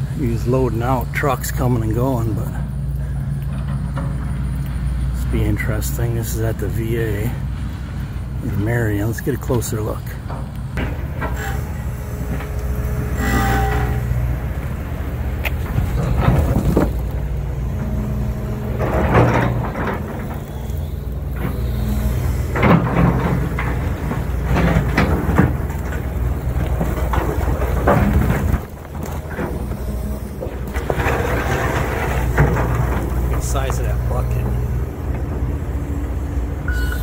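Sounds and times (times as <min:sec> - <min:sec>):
excavator diesel engine running: 0:00.0 - 0:37.0
bucket scraping asphalt: 0:05.2 - 0:37.0
concrete chunks clattering: 0:08.6 - 0:36.2.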